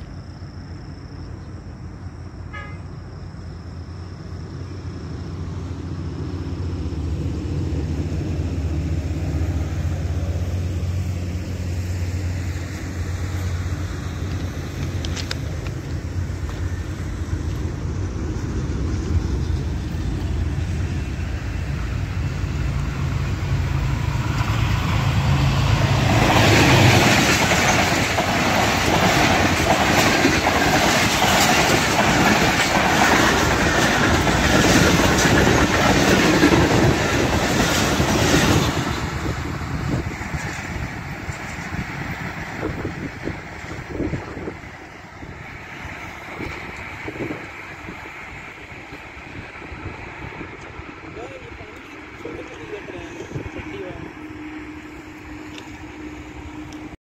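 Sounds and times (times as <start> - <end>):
diesel locomotive engine drone: 0.0 - 57.0
train coaches rumbling: 0.0 - 57.0
train wheel clatter: 11.7 - 55.9.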